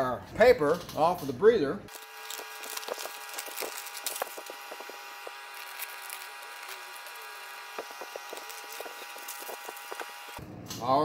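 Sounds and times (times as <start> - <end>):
steady background hum: 0.0 - 11.0
paper and tape crinkling: 1.9 - 10.4.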